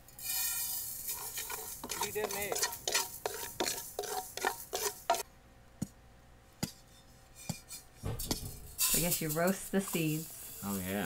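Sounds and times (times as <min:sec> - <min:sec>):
spatula scraping seeds in pan: 0:00.1 - 0:05.2, 0:07.4 - 0:11.0
sharp knocks: 0:08.0 - 0:08.8.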